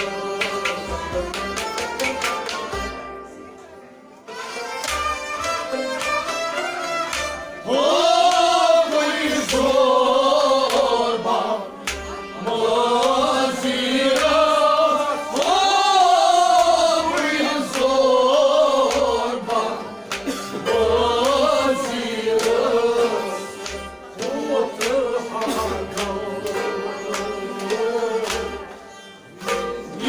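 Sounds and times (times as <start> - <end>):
plucked lute: 0.0 - 30.0
person singing: 24.2 - 30.0.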